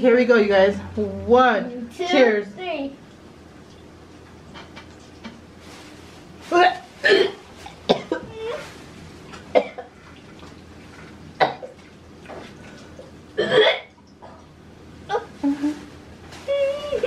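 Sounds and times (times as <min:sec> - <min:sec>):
woman gagging and coughing: 0:07.0 - 0:08.3, 0:13.4 - 0:13.9
woman retching: 0:07.0 - 0:08.6, 0:13.4 - 0:13.9.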